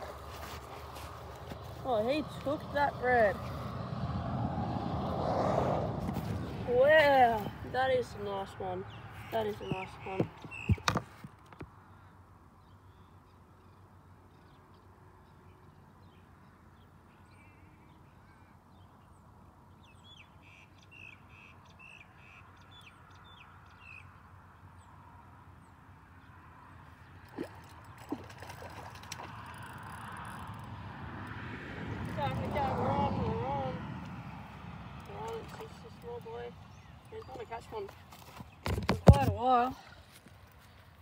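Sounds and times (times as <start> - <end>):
faint birdsong: 7.3 - 29.2, 35.0 - 38.8.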